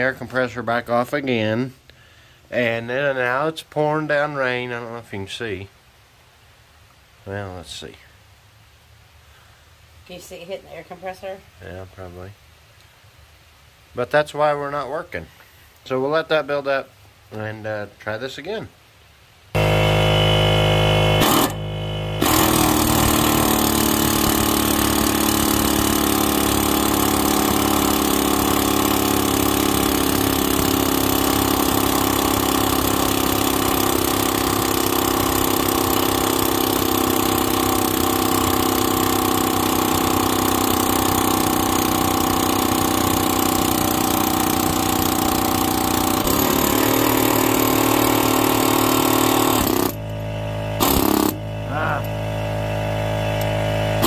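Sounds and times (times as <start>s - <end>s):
pneumatic air hammer running: 19.6s - 54.0s.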